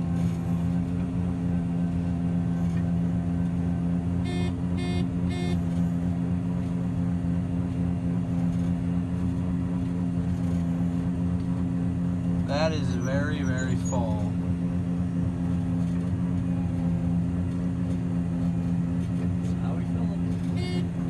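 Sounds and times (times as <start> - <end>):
combine harvester engine drone: 0.0 - 21.0
short electronic beeps: 4.2 - 5.7, 12.5 - 14.3, 20.4 - 21.0.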